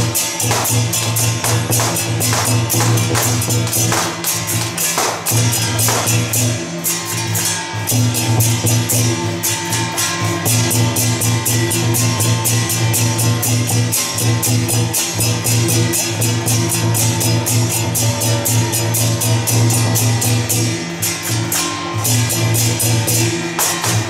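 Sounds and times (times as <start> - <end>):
metallic percussion strokes: 0.0 - 24.0.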